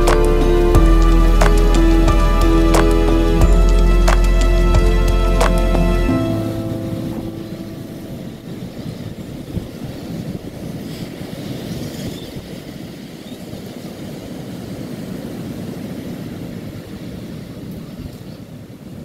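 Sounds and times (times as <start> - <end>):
wind on microphone: 0.0 - 19.0.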